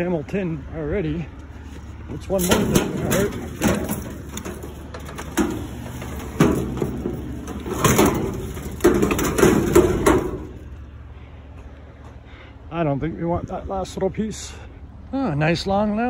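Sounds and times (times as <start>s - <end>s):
scrap metal clanking: 2.1s - 10.8s.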